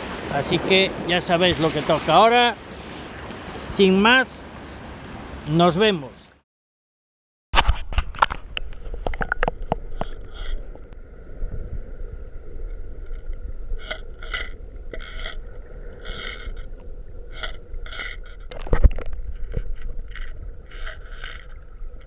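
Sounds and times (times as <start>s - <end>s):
underwater water wash: 0.0s - 3.6s, 8.0s - 22.0s
squid jig rattling: 8.2s - 10.8s, 13.8s - 22.0s.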